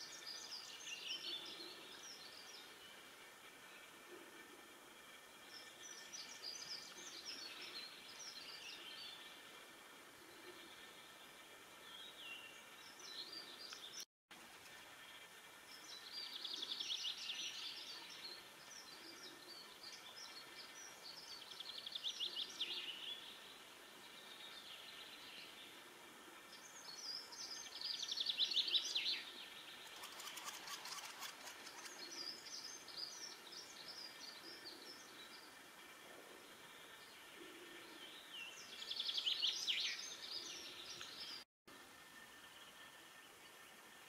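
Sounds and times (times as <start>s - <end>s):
woodpeckers chattering trills: 27.5s - 41.2s.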